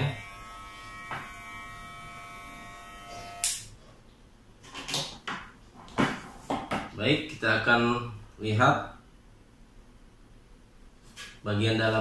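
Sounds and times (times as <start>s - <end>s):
hair clipper buzzing: 0.0s - 3.7s.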